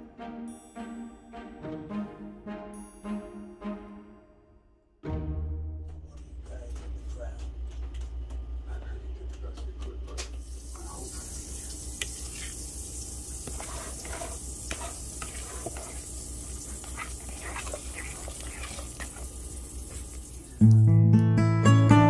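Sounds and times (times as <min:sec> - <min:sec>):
utensil stirring wet batter: 0:10.8 - 0:20.6
acoustic guitar music: 0:20.6 - 0:22.0.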